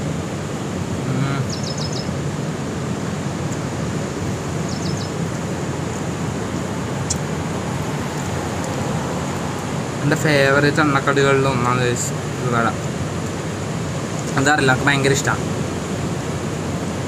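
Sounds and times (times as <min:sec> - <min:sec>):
sea surf rushing: 0:00.0 - 0:17.0.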